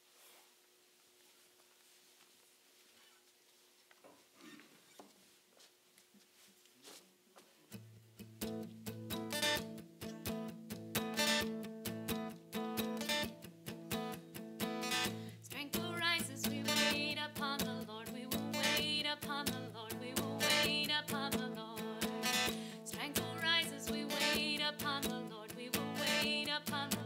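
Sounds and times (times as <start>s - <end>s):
acoustic guitar strumming: 7.7s - 27.0s
woman singing: 15.3s - 27.0s.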